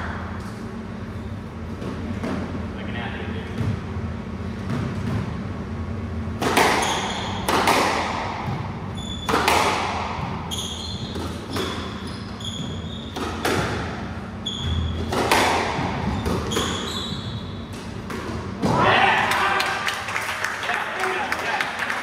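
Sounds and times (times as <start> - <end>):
squash ball hits: 6.3 - 19.2
shoes squeaking on wooden floor: 10.4 - 13.3, 14.4 - 15.1, 16.0 - 17.7.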